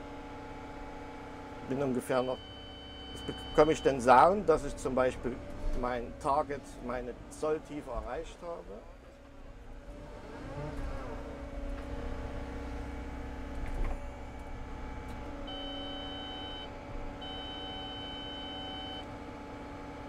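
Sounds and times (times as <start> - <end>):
excavator running: 0.0 - 20.0
steady high beep: 2.4 - 4.0.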